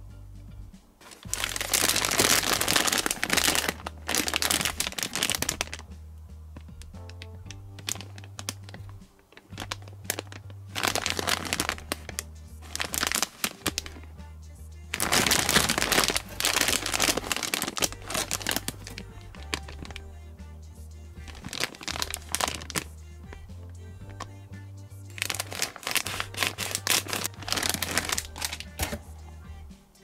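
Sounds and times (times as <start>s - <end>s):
background music with bass line: 0.0s - 30.0s
plastic wrappers crinkling and tearing: 1.0s - 5.8s, 6.8s - 14.1s, 14.9s - 20.0s, 21.2s - 22.9s, 25.1s - 29.1s.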